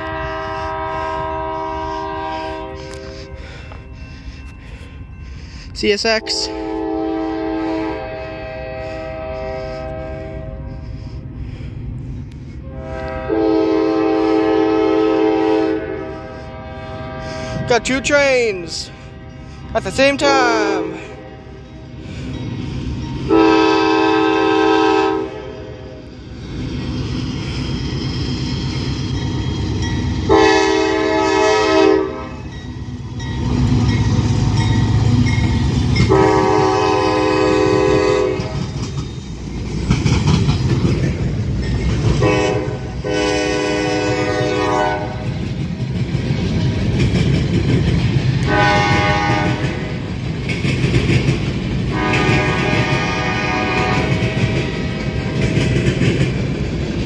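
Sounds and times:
locomotive air horn blasts: 0.0 - 3.4, 6.2 - 10.8, 12.6 - 17.7, 23.3 - 26.0, 30.3 - 32.4, 36.1 - 38.6, 42.2 - 45.2, 48.4 - 49.9, 51.9 - 54.2
train rumble and wheel clatter: 0.0 - 57.0.

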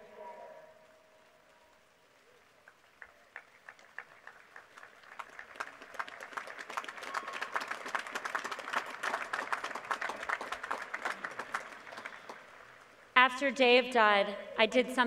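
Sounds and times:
crowd applauding: 2.6 - 12.9.

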